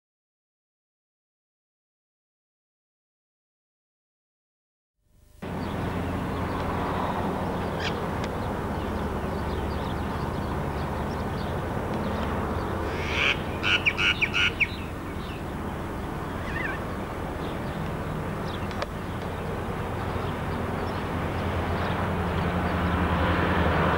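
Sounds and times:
electric train humming: 5.4 - 23.9
quick high-pitched calls: 12.9 - 14.8.

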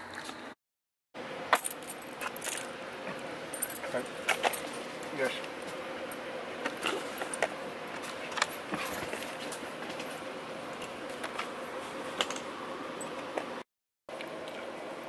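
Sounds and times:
faint steady hum: 1.2 - 15.0
metal chain collar jingling: 1.6 - 2.7, 3.5 - 4.8.

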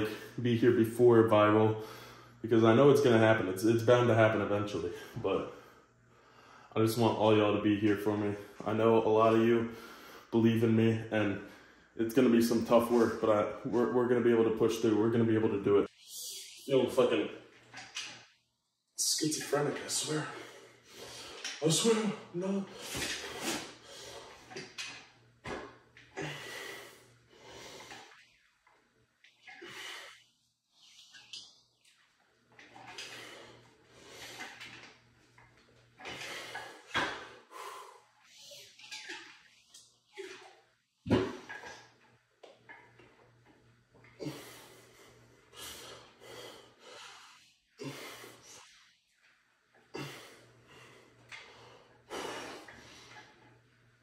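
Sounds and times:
man breathing heavily: 26.2 - 28.1, 44.2 - 48.9, 49.9 - 53.4.

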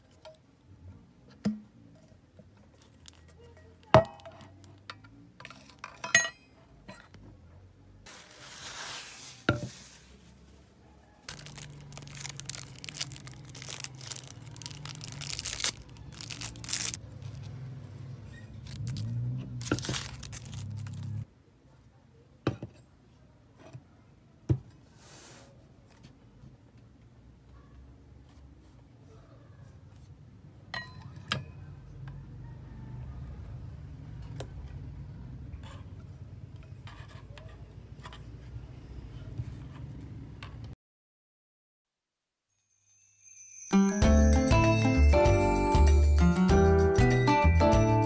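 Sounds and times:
plastic film crinkling and tearing: 8.1 - 9.5, 11.3 - 17.5, 18.6 - 21.2.

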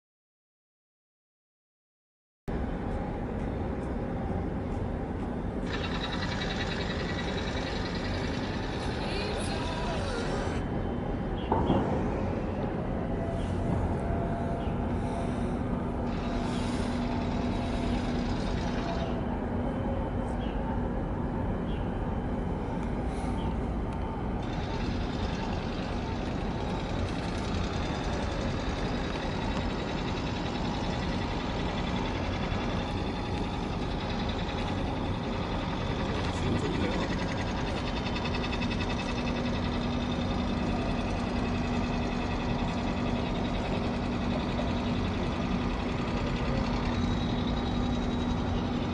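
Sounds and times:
low engine rumble: 2.5 - 48.9
low hum: 2.5 - 48.9.

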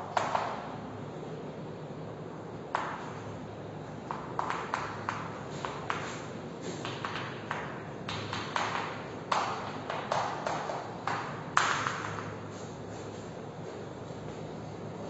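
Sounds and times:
chalk tapping on a blackboard: 4.0 - 13.4.

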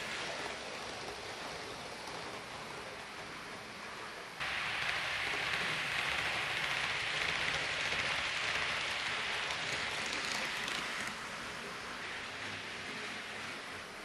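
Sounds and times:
model train motor whirring: 4.4 - 13.4.

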